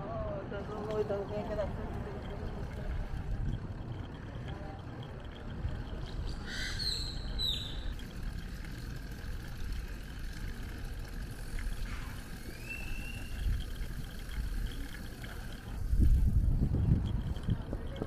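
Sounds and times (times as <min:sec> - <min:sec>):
wind rumble on microphone: 0:00.4 - 0:07.9, 0:12.8 - 0:18.0
high chirps: 0:06.0 - 0:08.0, 0:12.4 - 0:13.5.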